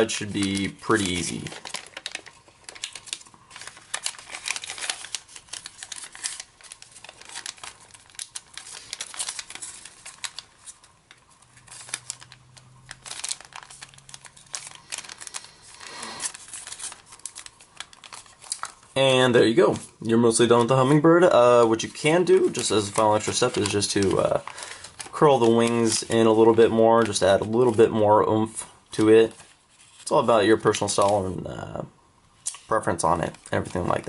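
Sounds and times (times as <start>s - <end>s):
paper rustling and crinkling: 0.0s - 31.4s, 32.5s - 34.0s.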